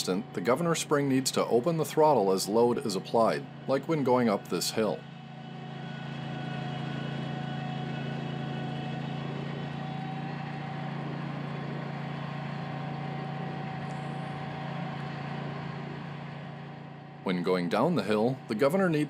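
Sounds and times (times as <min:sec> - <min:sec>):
mower engine running steadily: 0:00.0 - 0:19.0.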